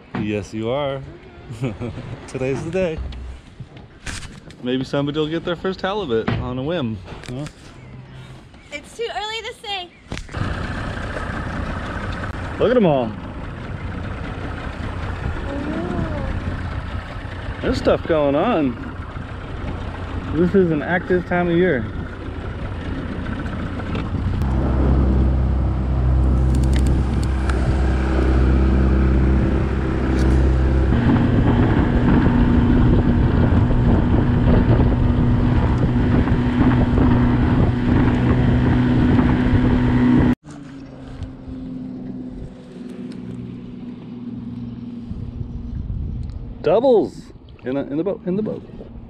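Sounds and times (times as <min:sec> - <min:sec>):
boat motor running: 0:02.0 - 0:03.9, 0:10.3 - 0:46.6
wind on microphone: 0:22.0 - 0:40.4, 0:43.7 - 0:46.6.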